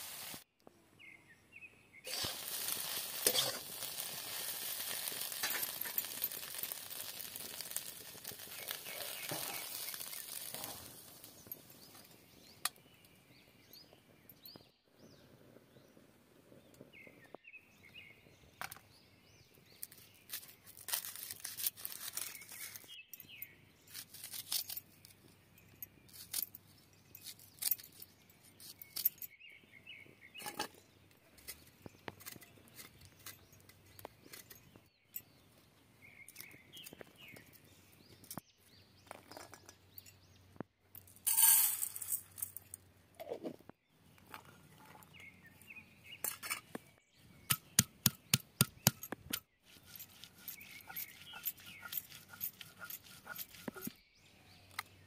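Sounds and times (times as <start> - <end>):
dry onion skins crackling: 2.1 - 12.2, 19.8 - 23.0, 23.8 - 25.3
stone pounding garlic: 47.5 - 49.1.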